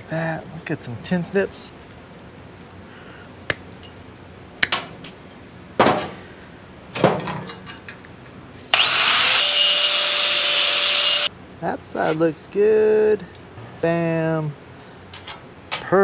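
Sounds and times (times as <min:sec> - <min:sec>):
angle grinder whining: 0:08.7 - 0:11.3.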